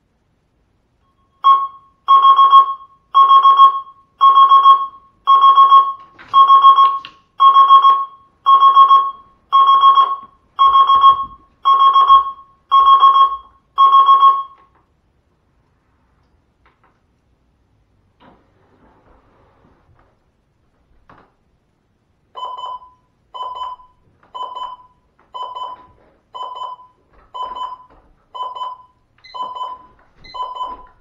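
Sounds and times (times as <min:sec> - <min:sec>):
electronic alarm beeping: 0:01.0 - 0:14.6, 0:22.4 - 0:31.0.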